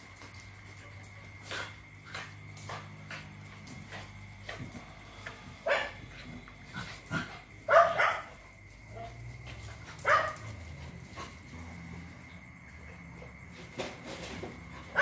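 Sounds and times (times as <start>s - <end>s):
dogs barking: 5.4s - 10.8s.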